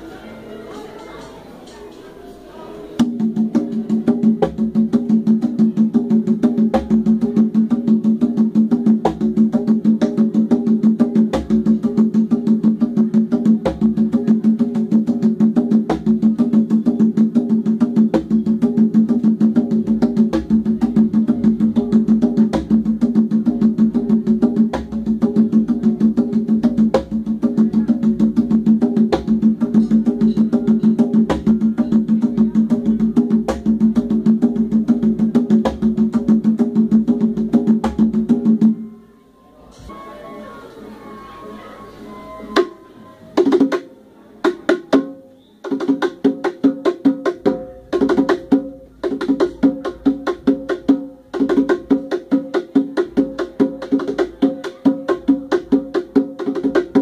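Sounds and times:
congas played by hand: 0:00.0 - 0:39.0, 0:42.1 - 0:57.0.

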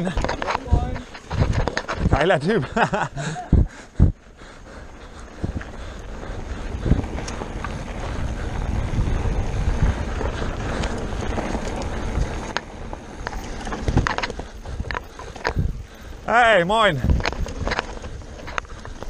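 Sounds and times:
wind buffeting microphone: 0:00.0 - 0:02.4, 0:03.0 - 0:19.0
bike clicks and rattles: 0:00.0 - 0:19.0
tyres rumbling over dirt: 0:04.2 - 0:19.0.

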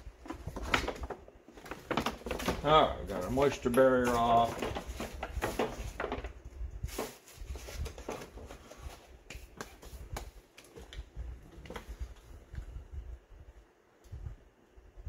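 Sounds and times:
hands clicking and rustling: 0:09.2 - 0:11.1.

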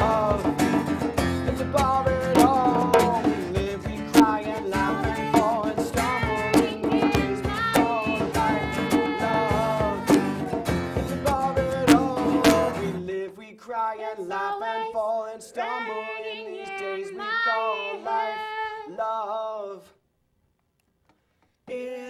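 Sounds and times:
hand drum: 0:00.0 - 0:12.9
acoustic guitar: 0:00.0 - 0:13.3
woman singing: 0:02.3 - 0:10.7, 0:14.3 - 0:19.1.

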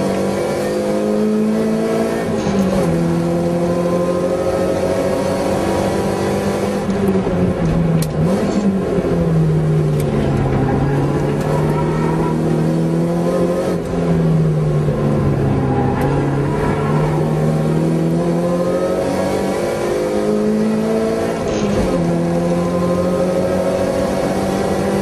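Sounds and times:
car engine from inside cabin: 0:00.0 - 0:25.0.

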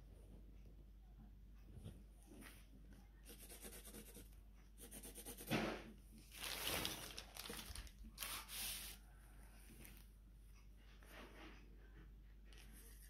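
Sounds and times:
plastic bag rustling: 0:06.2 - 0:09.0.

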